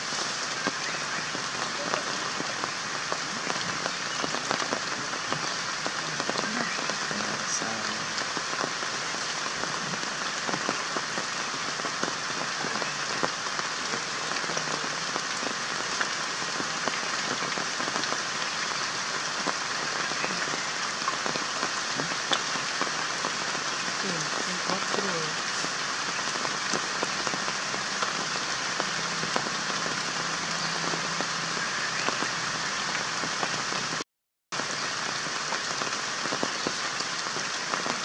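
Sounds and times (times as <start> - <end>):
rain falling on foliage: 0.0 - 38.0.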